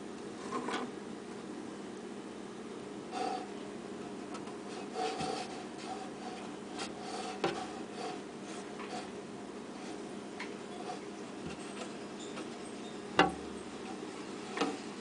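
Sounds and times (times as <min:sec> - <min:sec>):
steady low hum: 0:00.0 - 0:15.0
hand rubbing near microphone: 0:04.7 - 0:10.1.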